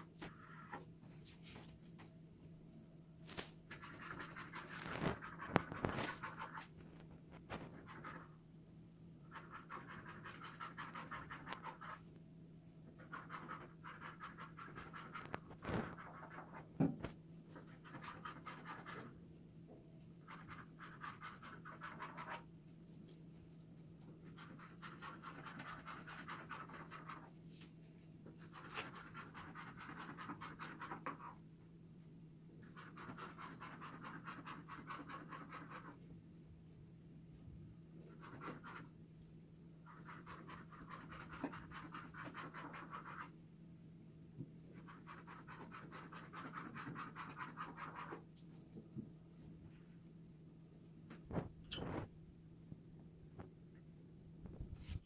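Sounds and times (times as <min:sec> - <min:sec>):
scratchy rubbing strokes: 0:03.3 - 0:08.4, 0:09.2 - 0:12.1, 0:13.0 - 0:16.7, 0:17.5 - 0:19.2, 0:20.2 - 0:22.5, 0:24.2 - 0:27.4, 0:28.4 - 0:31.4, 0:32.6 - 0:36.0, 0:38.0 - 0:39.0, 0:39.8 - 0:43.4, 0:44.7 - 0:48.3.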